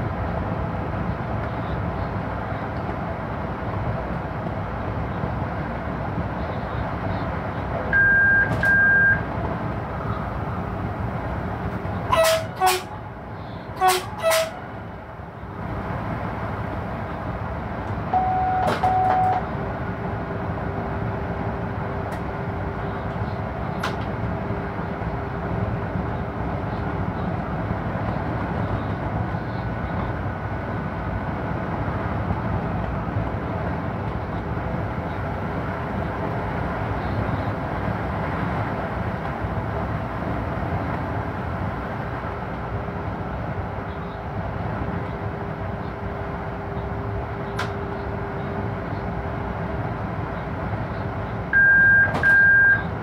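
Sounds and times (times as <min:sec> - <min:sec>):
train wheels rumbling on rails: 0:00.0 - 0:53.0
two-part steady tone: 0:18.1 - 0:19.4, 0:51.6 - 0:52.9.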